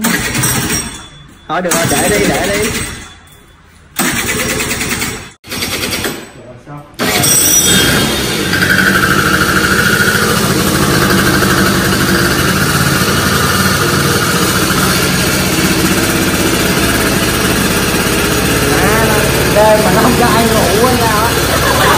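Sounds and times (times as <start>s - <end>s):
scooter engine running with whine: 7.0s - 21.9s.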